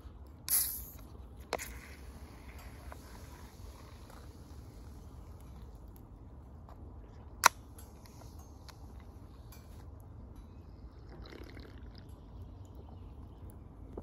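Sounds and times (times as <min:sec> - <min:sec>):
faint fizzing: 0:10.9 - 0:13.1
person sipping drink: 0:11.0 - 0:12.1.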